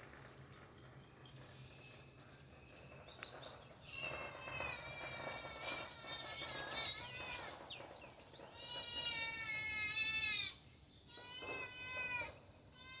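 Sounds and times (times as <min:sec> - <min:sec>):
drawn-out animal calls: 0:03.4 - 0:13.0.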